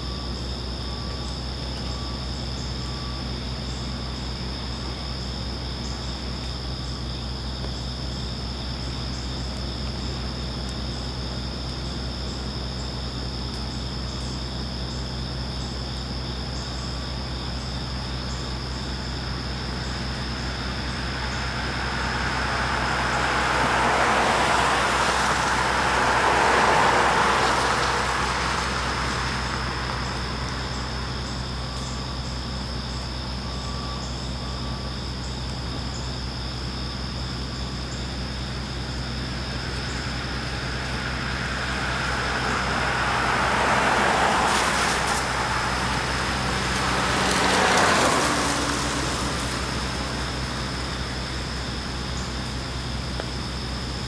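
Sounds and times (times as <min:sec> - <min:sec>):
car tyres hissing on wet road: 0:18.5 - 0:32.7, 0:37.6 - 0:54.0.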